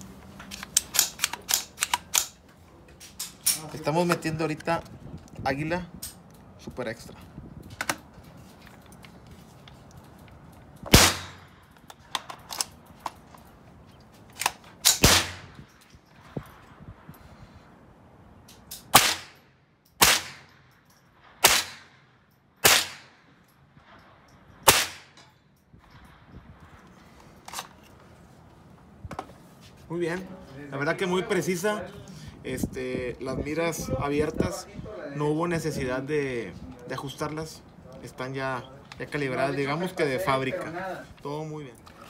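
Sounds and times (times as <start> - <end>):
rifle shots: 10.9 - 11.6, 14.4 - 15.7, 18.8 - 19.4, 20.0 - 23.3, 24.6 - 25.3.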